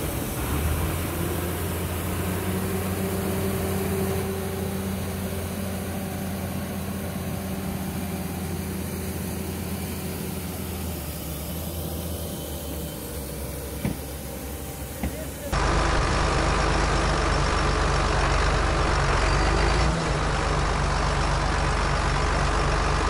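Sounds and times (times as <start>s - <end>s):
diesel engine humming: 0.0s - 23.0s.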